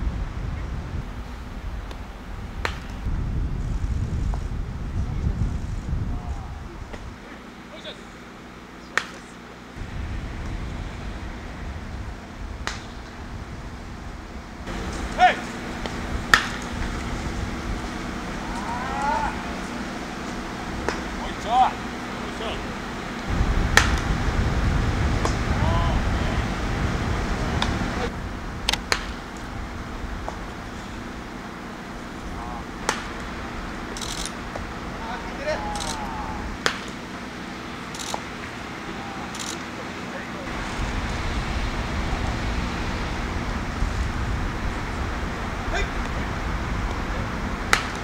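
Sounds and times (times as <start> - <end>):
low rumble: 0.0 - 7.2, 9.8 - 36.6, 40.5 - 47.8
bat hitting baseball: 2.6 - 3.0, 9.0 - 9.2, 12.6 - 13.0, 14.7 - 17.1, 20.8 - 21.2, 23.7 - 24.1, 28.7 - 29.4, 32.8 - 33.2, 36.6 - 37.0, 47.7 - 48.0.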